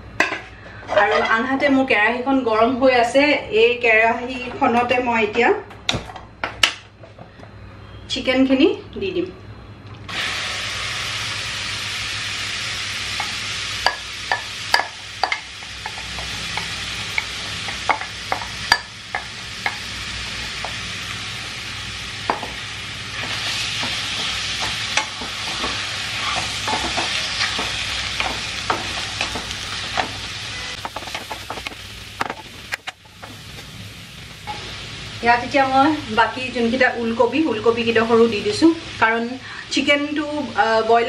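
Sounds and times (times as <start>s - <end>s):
chicken sizzling in a wok: 10.1s - 41.0s
utensils knocking against pan: 13.2s - 19.8s, 23.2s - 30.2s.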